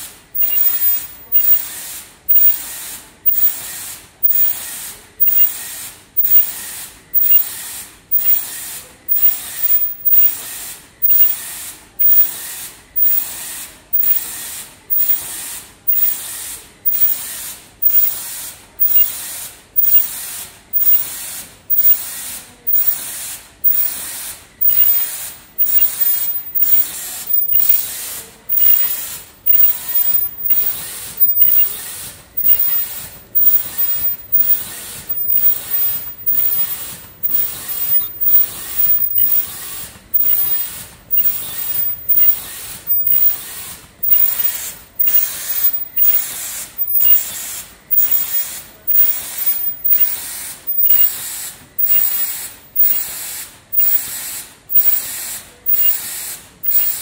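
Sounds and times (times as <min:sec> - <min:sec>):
hiss of released air: 0:00.0 - 0:57.0
machine clatter: 0:00.4 - 0:57.0.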